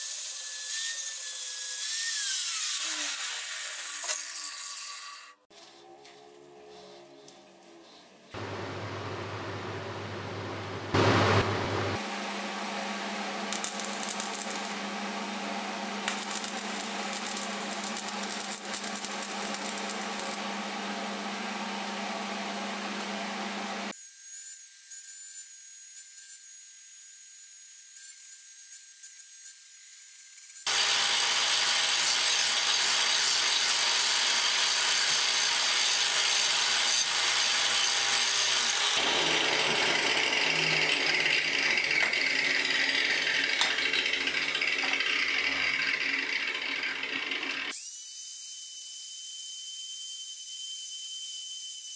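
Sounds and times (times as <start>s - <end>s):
power tool grinding steel: 0.0s - 8.4s, 13.4s - 23.7s, 30.4s - 47.8s.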